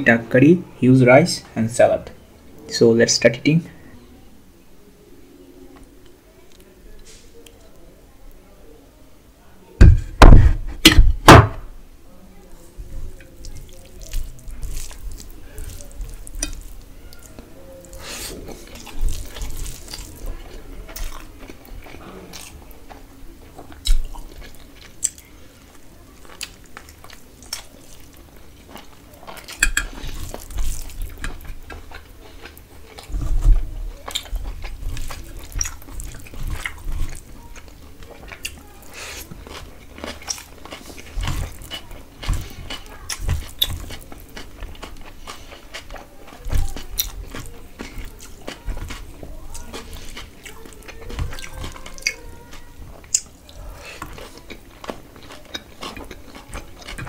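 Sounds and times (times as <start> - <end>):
wet chewing: 13.1 - 57.0
fingers mixing rice in steel bowl: 13.2 - 21.6, 28.7 - 31.8
mouth smacks and clicks: 53.0 - 53.4.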